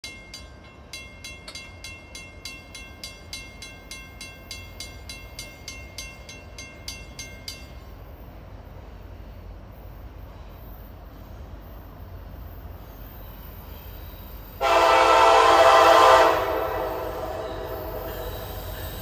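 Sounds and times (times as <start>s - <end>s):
crossing warning bell ringing: 0.0s - 8.7s, 14.6s - 19.0s.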